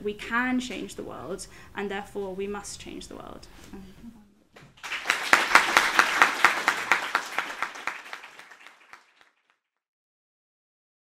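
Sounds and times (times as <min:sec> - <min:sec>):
audience applauding: 0:04.7 - 0:09.6.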